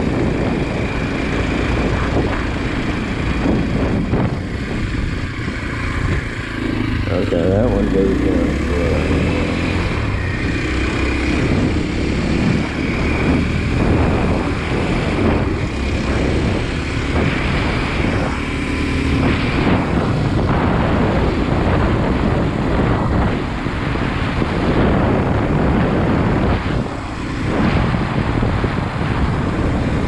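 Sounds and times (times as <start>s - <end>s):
motorcycle engine running: 0.0s - 30.0s
wind noise on microphone: 0.0s - 30.0s.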